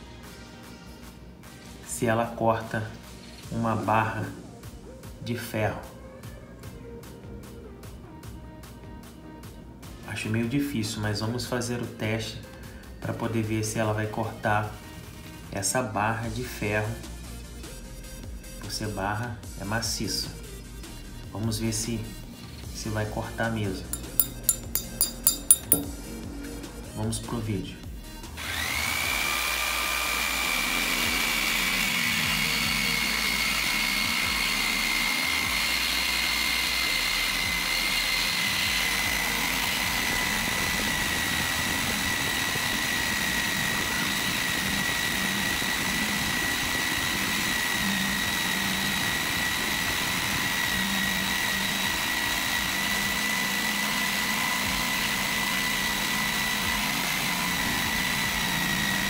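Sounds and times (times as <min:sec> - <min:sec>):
jigsaw cutting metal bar: 0:23.9 - 0:25.8, 0:28.4 - 0:59.0.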